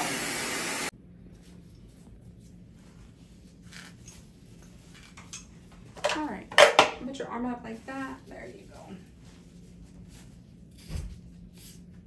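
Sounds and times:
cast saw running: 0.0s - 0.9s.

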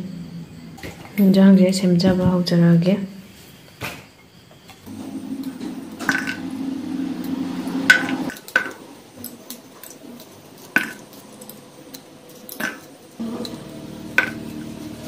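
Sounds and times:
low steady hum: 4.9s - 8.4s, 11.3s - 15.0s
knife striking metal bowl: 13.4s - 14.6s.

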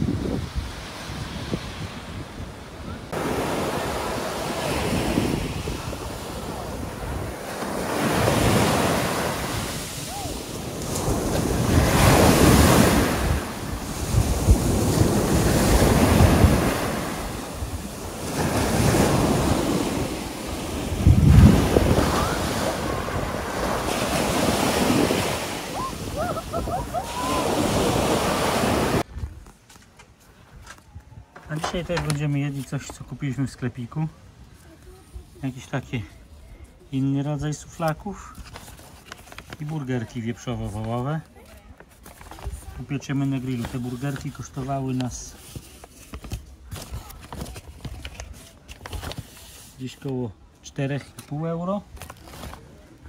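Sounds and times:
sea waves breaking: 0.0s - 29.1s
wind on microphone: 0.0s - 29.5s.

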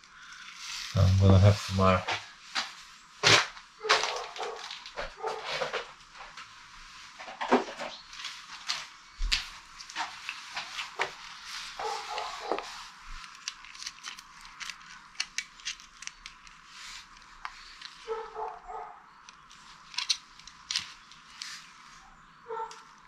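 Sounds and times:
dog barking: 3.8s - 5.6s, 11.8s - 12.7s, 18.0s - 19.0s, 22.4s - 22.8s.

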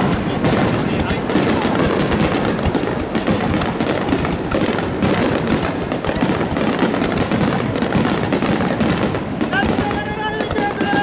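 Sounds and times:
fireworks bursting and crackling: 0.0s - 11.0s.

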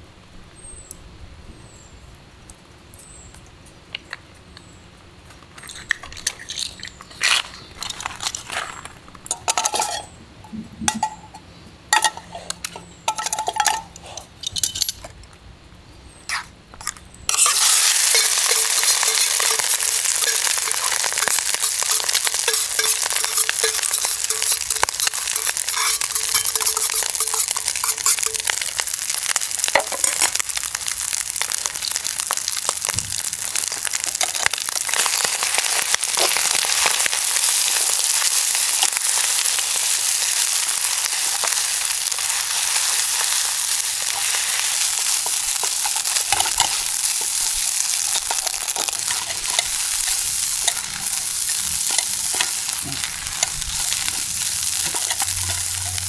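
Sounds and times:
utensil clinking and scraping: 5.6s - 10.2s, 16.8s - 28.6s, 48.1s - 56.0s
food sizzling in frying pan: 17.3s - 56.0s.

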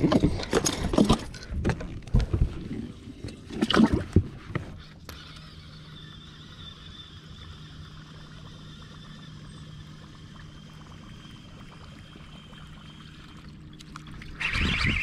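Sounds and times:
trickling water: 2.5s - 15.0s
electric motor humming: 4.7s - 13.6s.

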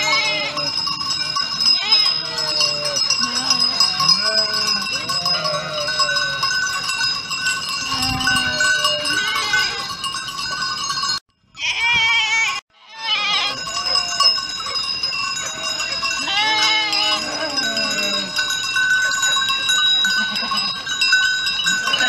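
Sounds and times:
sheep and goats bleating: 0.0s - 6.6s, 7.8s - 10.0s, 11.6s - 14.4s, 15.4s - 18.5s
livestock bells clanking: 0.0s - 22.0s.

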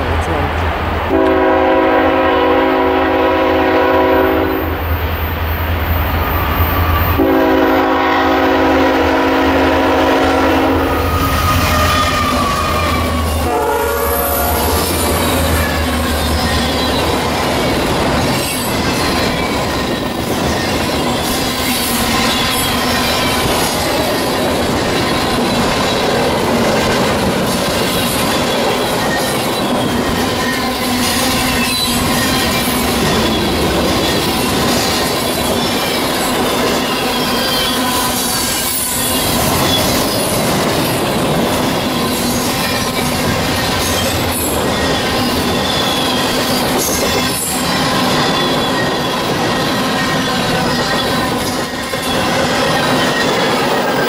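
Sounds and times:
train air horn blasts: 1.1s - 4.7s, 7.2s - 15.9s
high wheel squeal: 10.8s - 24.4s, 27.8s - 54.0s
freight cars clickety-clack: 14.4s - 54.0s.

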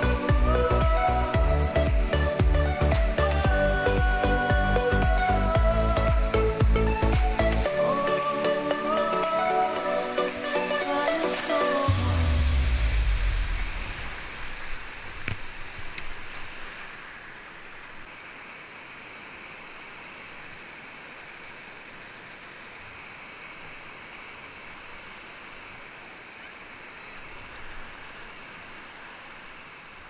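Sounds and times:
background music: 0.0s - 13.9s
whitewater rushing: 0.0s - 30.0s.

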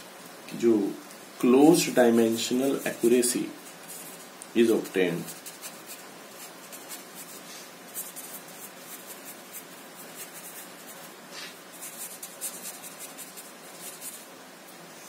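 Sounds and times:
pen scratching on paper: 5.2s - 11.1s, 11.8s - 14.2s.

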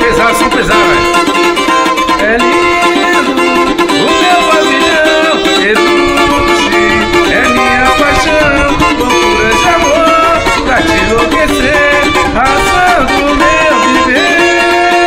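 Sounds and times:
man singing: 0.0s - 15.0s
small guitar strummed chords: 0.0s - 15.0s.

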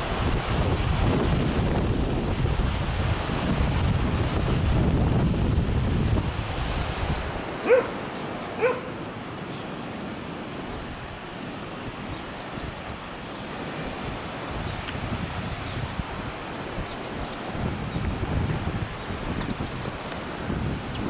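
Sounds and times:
surf rushing: 0.0s - 21.0s
wind buffeting the microphone: 0.0s - 21.0s
dog barking: 7.6s - 8.0s, 8.6s - 9.0s.

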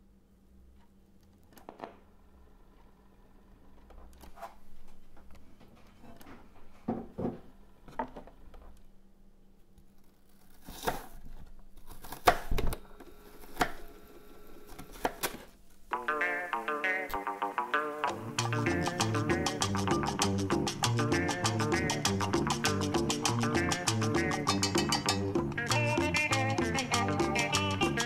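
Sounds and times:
knife cutting onion on wooden board: 10.5s - 11.2s, 11.9s - 12.6s, 13.4s - 13.8s
rhythmic latin-style music: 16.0s - 28.0s.

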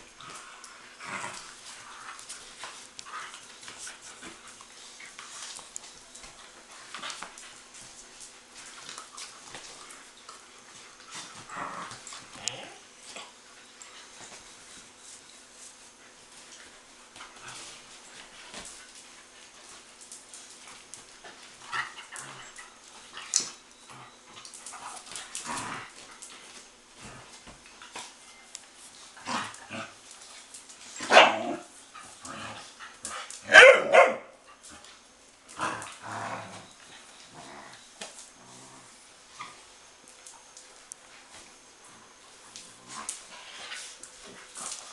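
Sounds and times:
young dogs barking and growling: 29.2s - 30.2s, 30.8s - 34.7s, 35.5s - 37.8s.

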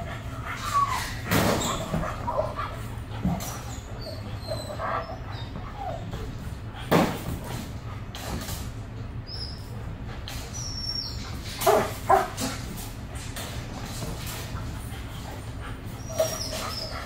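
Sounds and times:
dogs barking: 10.7s - 12.8s.

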